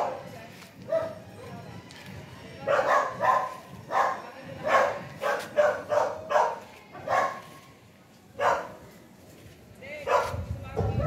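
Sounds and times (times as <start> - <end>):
dog barking: 0.9 - 1.2, 2.7 - 7.5, 8.4 - 8.8, 10.0 - 10.5.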